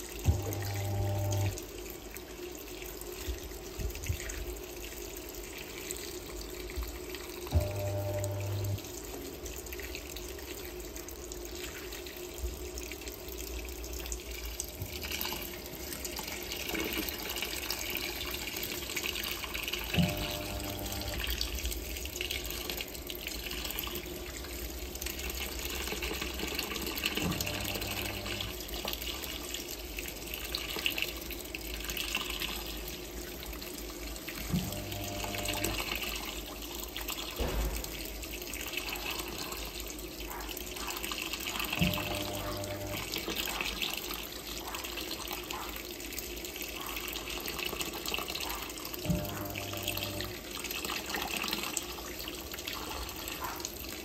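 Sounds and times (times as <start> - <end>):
water pouring into washing machine: 0.0 - 54.0
low motor hum: 0.3 - 1.6, 7.5 - 8.9, 20.0 - 21.4, 41.8 - 43.1, 49.1 - 50.4.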